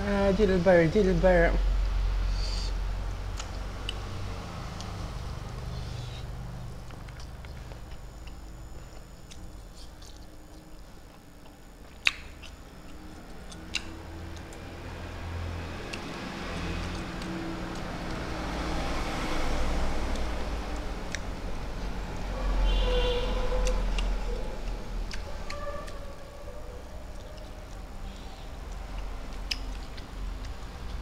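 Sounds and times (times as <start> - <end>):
person chewing: 2.2 - 4.1, 4.8 - 14.7, 23.4 - 31.0.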